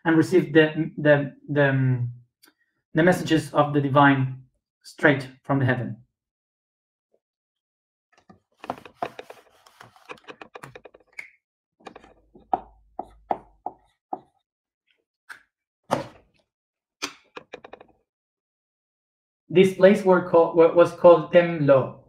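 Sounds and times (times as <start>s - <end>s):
whiteboard being handled: 8.2s - 11.3s.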